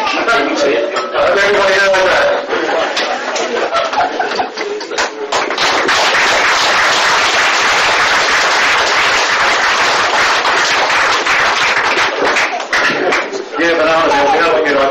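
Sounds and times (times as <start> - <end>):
audience applauding: 2.9 - 13.5.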